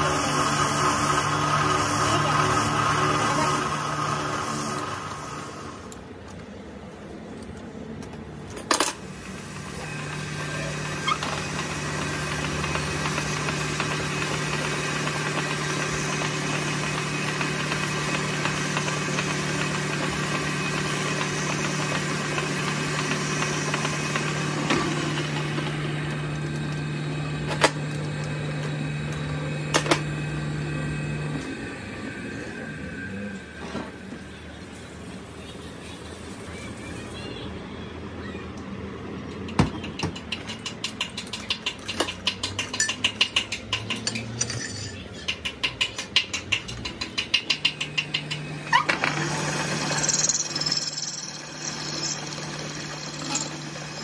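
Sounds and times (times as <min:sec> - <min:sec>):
metal lathe humming: 0:09.3 - 0:34.0, 0:47.8 - 0:54.0.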